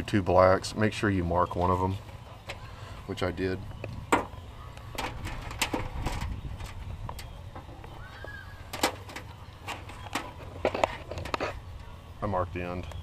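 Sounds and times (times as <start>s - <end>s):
steady low rumble: 0.0s - 13.0s
light clicks and rustles: 8.7s - 11.9s.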